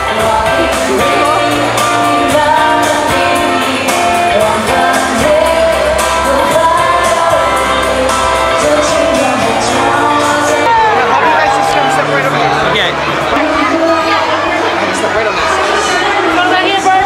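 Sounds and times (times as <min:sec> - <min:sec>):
person singing: 0:00.0 - 0:11.9
piano and band accompaniment: 0:00.0 - 0:16.4.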